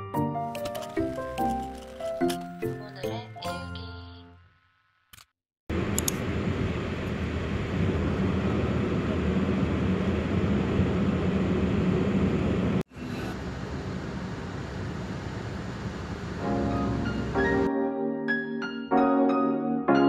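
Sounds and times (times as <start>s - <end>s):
car cabin road and engine noise: 5.7s - 17.7s.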